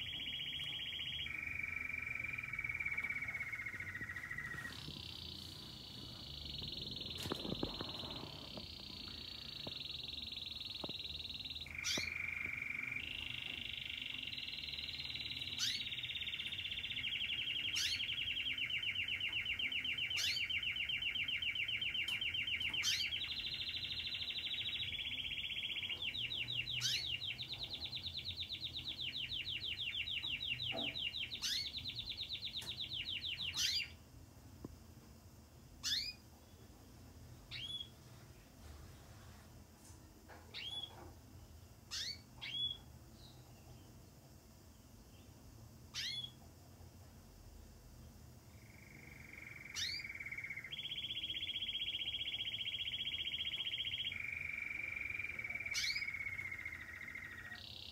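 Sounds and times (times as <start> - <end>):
canary singing trills: 0.0 - 34.0, 35.8 - 36.8, 37.4 - 38.2, 40.3 - 41.2, 41.9 - 44.0, 45.9 - 46.5, 48.4 - 57.9
canary single calls: 0.0 - 34.0, 35.8 - 36.2, 37.5 - 37.9, 40.5 - 41.0, 41.9 - 42.9, 45.9 - 46.4, 48.6 - 57.9.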